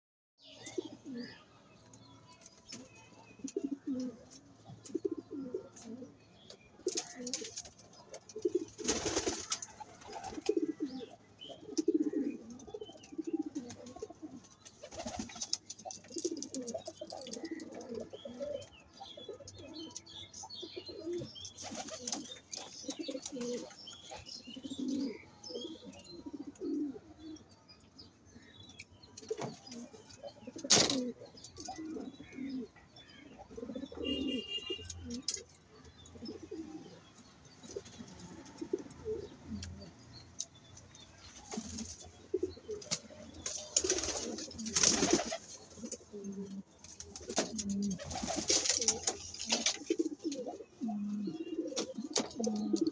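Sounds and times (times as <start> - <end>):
pigeons cooing: 0.6 - 1.4, 3.4 - 6.2, 8.2 - 27.5, 29.2 - 40.1, 41.4 - 52.9
wingbeats flurry: 42.8 - 45.5, 46.8 - 50.0.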